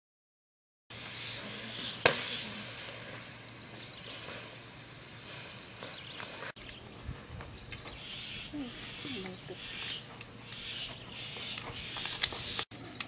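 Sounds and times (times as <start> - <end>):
mussels sizzling on a grill: 1.0 - 6.6
sharp crack: 2.0 - 3.4.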